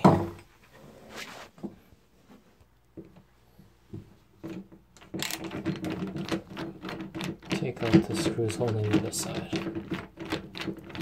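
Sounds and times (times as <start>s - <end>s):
screwdriver clicking and rattling: 5.0s - 11.0s.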